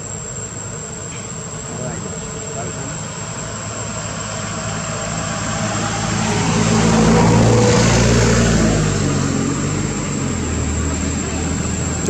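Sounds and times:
vehicle engine passing: 4.4s - 12.0s.

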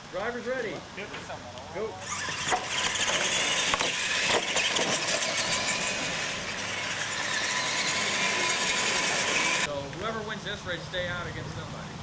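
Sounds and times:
drivetrain and tyre hiss: 0.0s - 12.0s
electric motors whining: 1.9s - 9.7s
sharp knocks: 2.5s - 5.0s.

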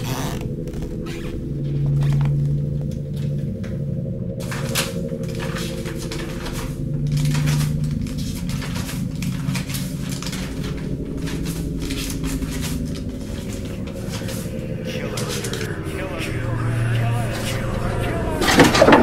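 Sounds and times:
low steady drone: 0.0s - 19.0s
paper book pages turning: 4.4s - 15.7s.

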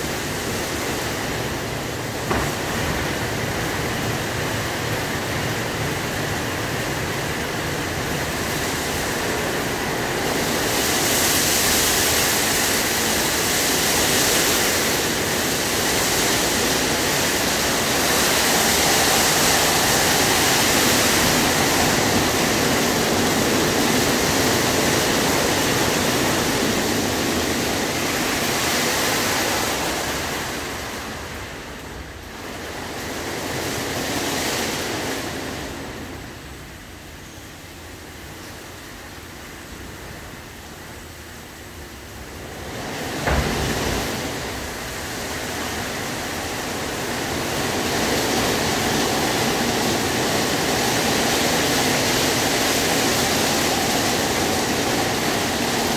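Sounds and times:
water spraying: 0.0s - 31.6s.

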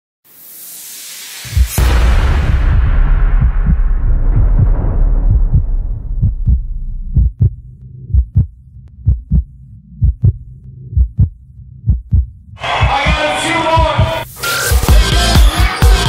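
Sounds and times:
heartbeat thumps: 1.5s - 14.2s.

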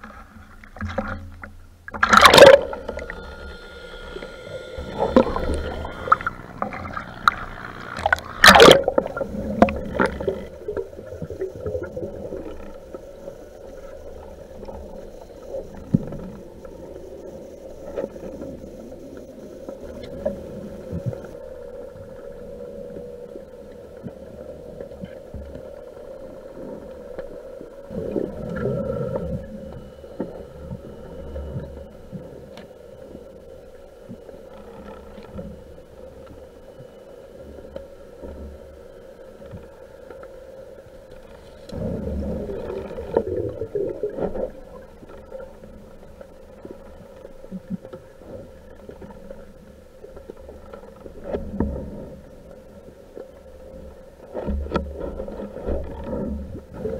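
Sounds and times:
underwater bubbling: 0.0s - 56.9s
underwater hum: 0.0s - 56.9s.

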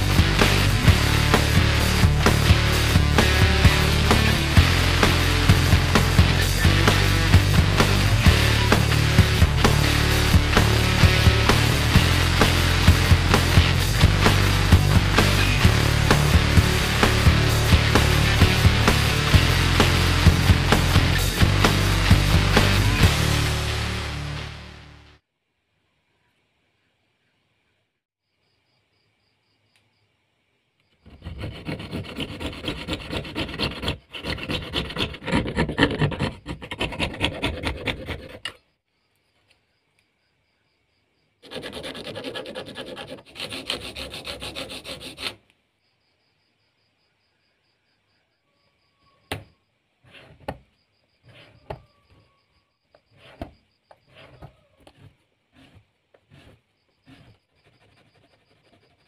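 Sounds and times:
fretsaw cutting plastic: 31.0s - 38.6s, 41.4s - 45.5s, 52.9s - 59.0s
scribing tool scraping plastic sheet: 31.0s - 38.6s, 41.4s - 45.4s, 50.1s - 50.6s, 53.0s - 59.0s.

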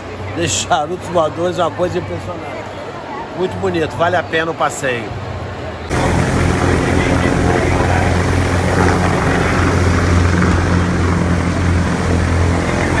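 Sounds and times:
helicopter running: 5.9s - 13.0s.

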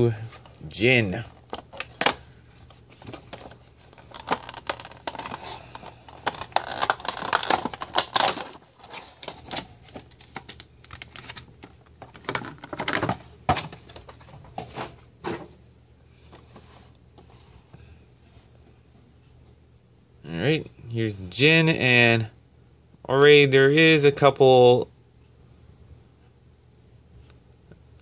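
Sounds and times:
cardboard box and plastic rustling: 0.2s - 15.5s.

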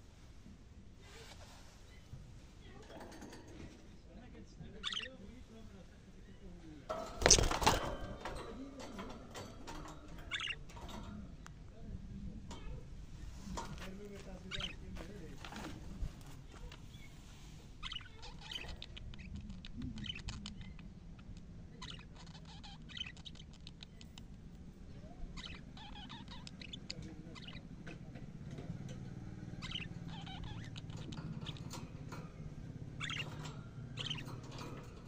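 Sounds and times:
low steady hum: 0.0s - 35.0s
budgerigars chirping: 4.6s - 11.6s, 12.6s - 15.8s, 16.6s - 35.0s.

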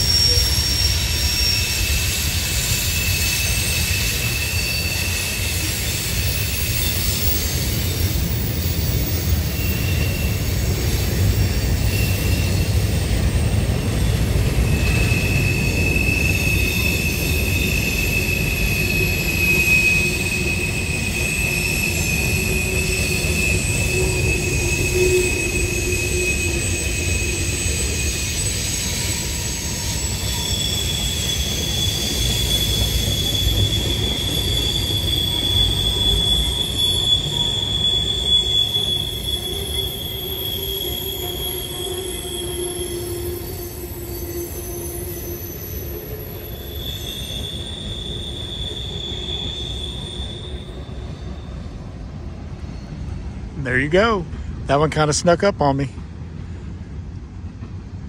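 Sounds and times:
higher-pitched wheel squeal: 0.0s - 54.1s
high wheel squeal: 0.0s - 54.2s
freight train wheels rumbling on rail: 0.0s - 58.0s.

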